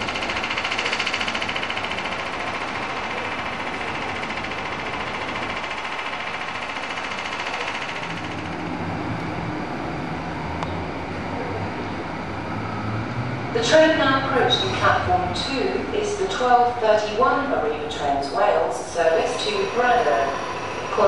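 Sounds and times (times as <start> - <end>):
pulsing train clatter: 0.0 - 10.2, 13.4 - 21.0
train engine pulling away: 0.0 - 16.8, 17.5 - 21.0
low steady engine hum: 0.0 - 21.0.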